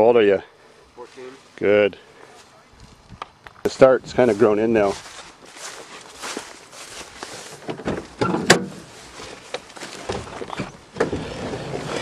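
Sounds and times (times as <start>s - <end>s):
person climbing into car: 7.5s - 12.0s.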